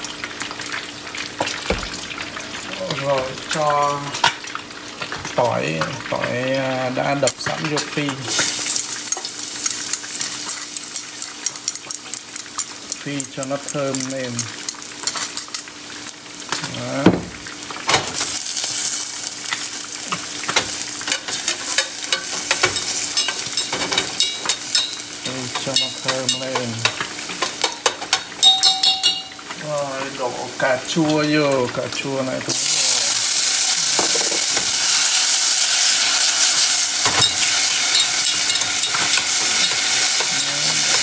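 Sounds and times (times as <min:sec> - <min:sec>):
garlic sizzling in oil: 0:00.0 - 0:41.0
chopsticks stirring in pan: 0:08.0 - 0:15.8, 0:18.2 - 0:29.6, 0:32.5 - 0:41.0.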